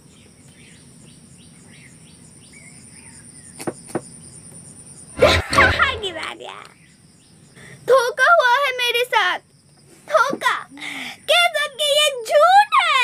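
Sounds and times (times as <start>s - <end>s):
faint insect chirps: 0.0s - 13.0s.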